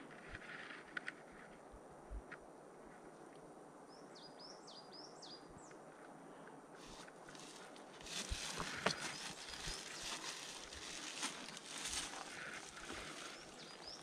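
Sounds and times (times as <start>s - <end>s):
footsteps on dry ground: 6.8s - 14.0s.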